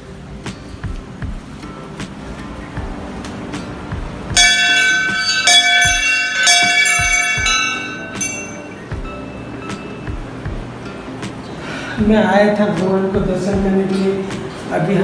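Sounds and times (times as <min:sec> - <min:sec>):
brass bell ringing: 0:04.4 - 0:10.0.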